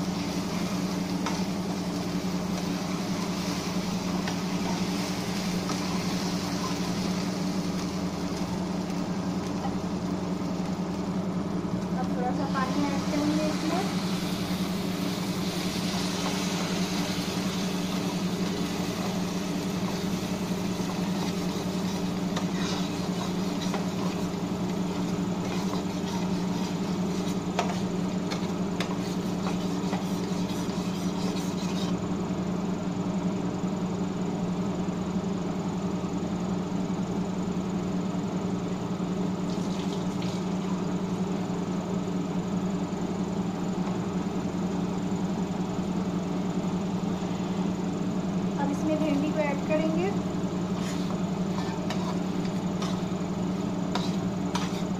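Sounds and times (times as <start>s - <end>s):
tomato puree sizzling and bubbling: 0.0s - 32.0s, 39.1s - 42.0s, 48.4s - 54.9s
low machine hum: 0.0s - 54.9s
spatula scraping a pan: 15.2s - 32.0s, 50.6s - 54.9s.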